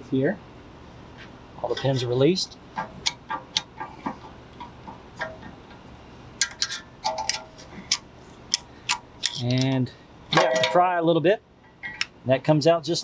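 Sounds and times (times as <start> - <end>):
metal ringing: 6.4 - 7.6, 10.3 - 12.1.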